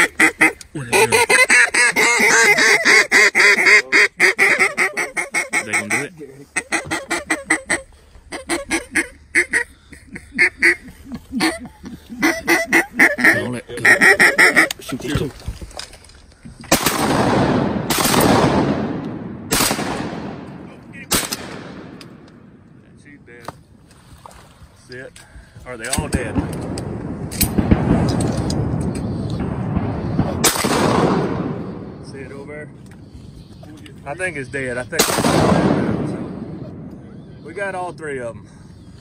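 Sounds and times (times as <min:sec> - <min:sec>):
duck call quacks: 0:00.0 - 0:11.6, 0:12.2 - 0:14.8
shotgun shots: 0:16.7 - 0:22.2, 0:25.9 - 0:31.9, 0:35.0 - 0:36.9
rolling echo: 0:26.0 - 0:33.1.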